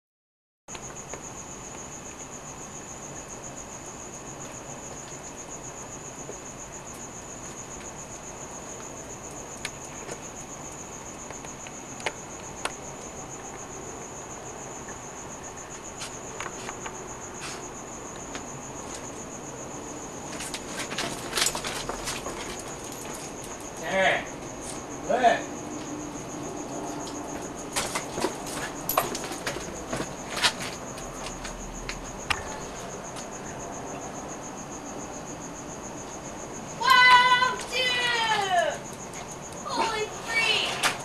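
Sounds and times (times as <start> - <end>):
cricket chirping trill: 0.7 - 41.0.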